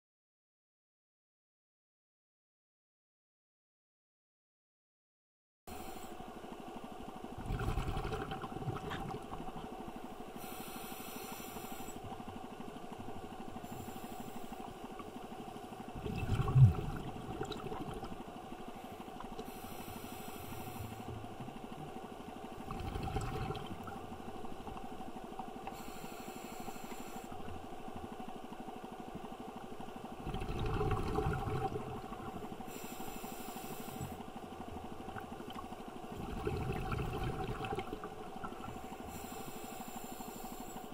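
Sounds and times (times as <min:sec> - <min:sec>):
diver breathing hiss and bubbles: 0:05.7 - 0:06.5, 0:07.3 - 0:21.7, 0:25.5 - 0:27.8, 0:30.2 - 0:40.9
faint underwater hum: 0:05.7 - 0:40.9.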